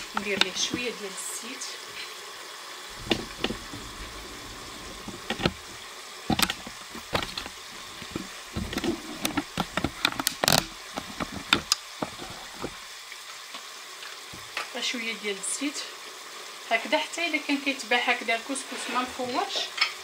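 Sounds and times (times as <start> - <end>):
low rumbling bumps: 2.9 - 9.6
clicks and knocks of handling: 4.9 - 12.8.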